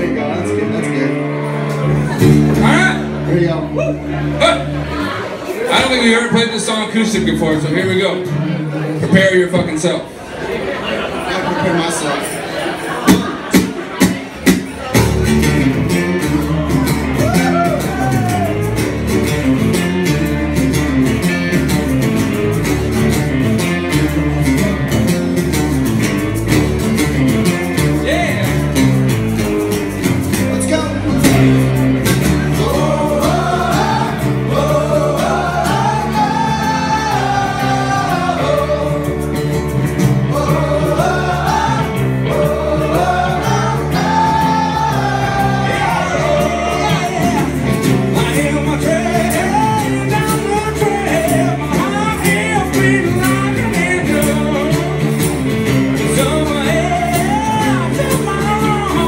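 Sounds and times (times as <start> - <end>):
bass guitar: 0.0 - 10.4, 12.2 - 59.0
strummed acoustic guitar: 12.1 - 59.0
man singing: 44.7 - 55.3, 56.0 - 59.0.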